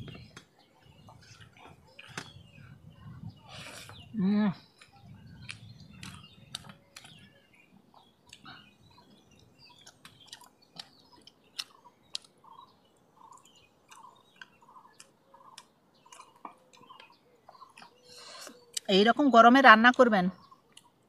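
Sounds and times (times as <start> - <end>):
bird calling: 0.0 - 18.9
person chewing: 4.8 - 7.2, 8.2 - 8.5, 9.5 - 12.4, 13.2 - 18.9.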